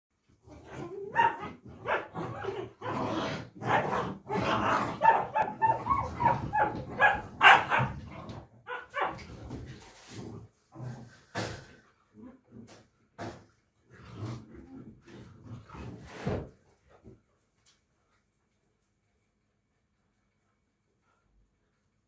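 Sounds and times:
puppies barking and yipping: 5.0 - 8.0.

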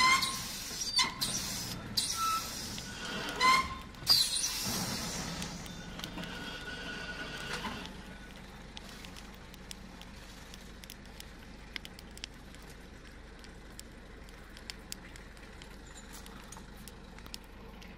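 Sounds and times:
engine running: 0.0 - 17.9
sharp clicks: 7.4 - 17.9.

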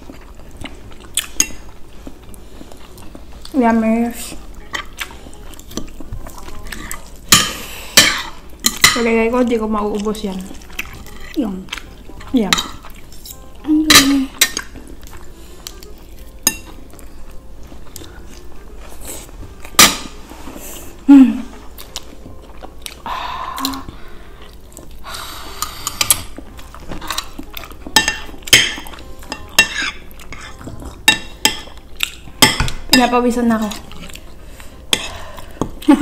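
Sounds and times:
chewing: 0.0 - 8.9, 9.8 - 19.8, 20.4 - 32.8, 33.6 - 36.0.

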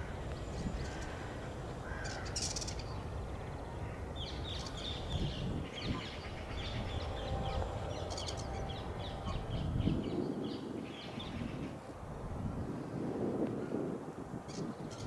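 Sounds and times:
birds chirping and squawking: 0.0 - 3.1, 3.8 - 11.7
low outdoor rumble: 0.0 - 12.7.

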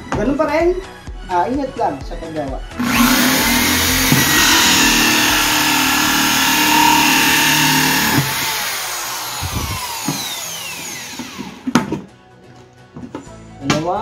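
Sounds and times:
drill whine winding down: 2.8 - 11.7
drill hole saw cutting plastic: 2.8 - 11.9.

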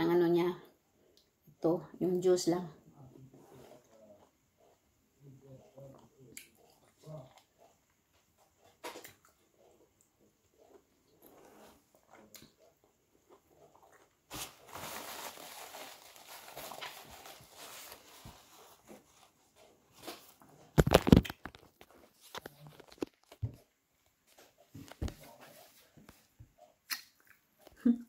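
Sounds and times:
paper napkin rustling: 14.3 - 20.8.

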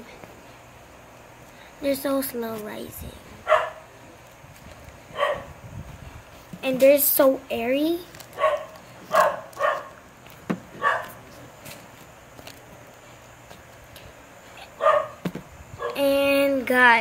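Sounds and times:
dog barking: 3.4 - 3.9, 5.1 - 5.5, 8.4 - 10.0, 10.8 - 11.2, 14.8 - 15.2, 15.8 - 16.0.

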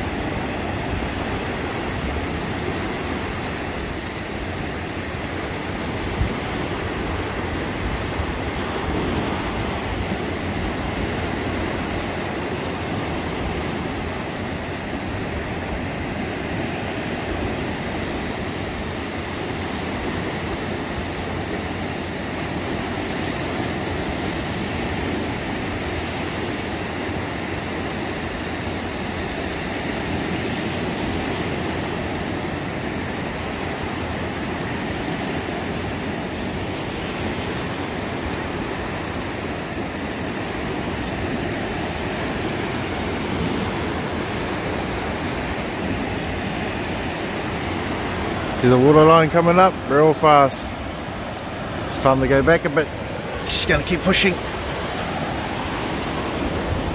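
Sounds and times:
surf breaking on beach: 0.0 - 56.9
wind buffeting microphone: 50.6 - 56.9.

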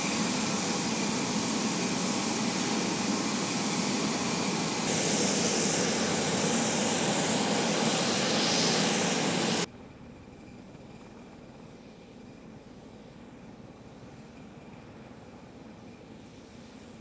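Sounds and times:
distant aircraft noise: 0.0 - 9.7
aircraft turbine noise with whine: 0.0 - 17.0.

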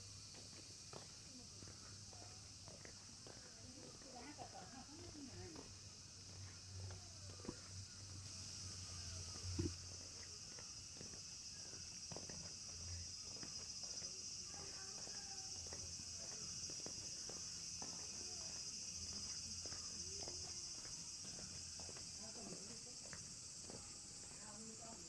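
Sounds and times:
insects chirring: 0.0 - 25.0
faint voices: 0.9 - 12.3, 12.9 - 25.0.

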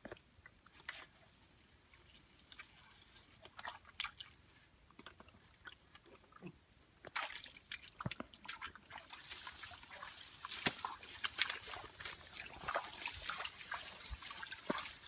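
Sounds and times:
hands splashing in muddy water: 7.1 - 15.0.

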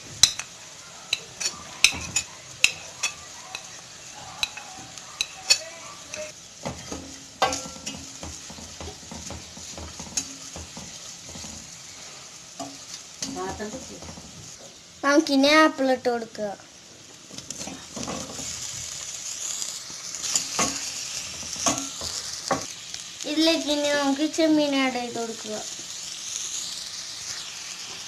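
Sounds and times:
onions sizzling in oil: 0.0 - 28.0
wooden spoon knocking against pot: 6.6 - 11.7.

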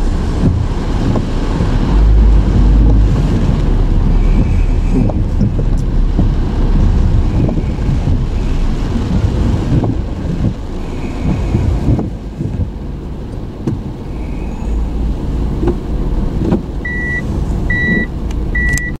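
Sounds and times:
wind and rain buffeting car: 0.0 - 19.0.

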